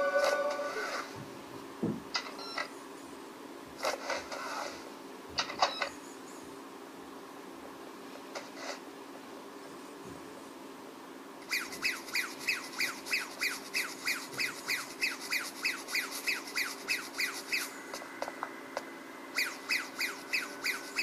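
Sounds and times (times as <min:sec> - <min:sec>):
thin steady whistle: 0:00.0 - 0:01.0, 0:11.4 - 0:18.0, 0:19.3 - 0:21.0
squeaky descending chirps: 0:11.5 - 0:17.8, 0:19.4 - 0:21.0.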